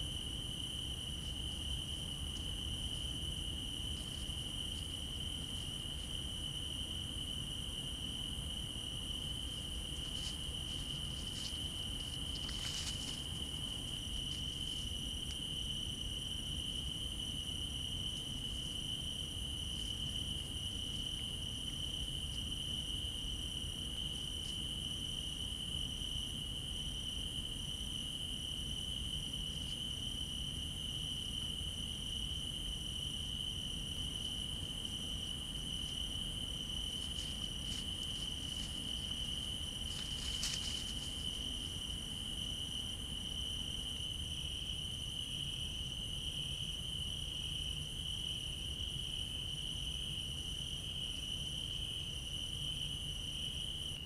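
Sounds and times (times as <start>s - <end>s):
crickets chirping: 0.0s - 54.0s
rustling and clicks: 10.0s - 13.6s, 36.9s - 41.3s.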